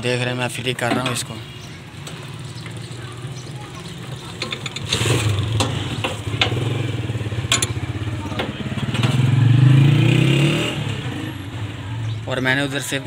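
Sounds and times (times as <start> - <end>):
engine hum: 0.0 - 13.0.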